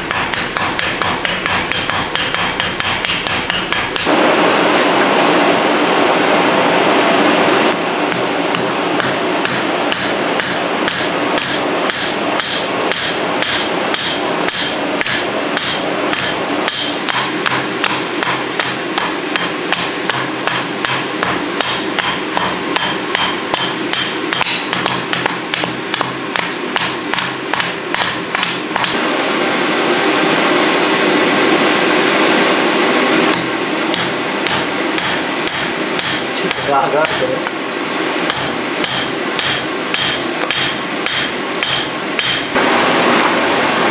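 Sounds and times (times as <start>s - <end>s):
hammer striking metal on anvil: 0.0s - 4.2s, 8.1s - 29.0s, 33.3s - 37.5s, 38.3s - 42.6s
steady rushing noise: 3.9s - 43.9s.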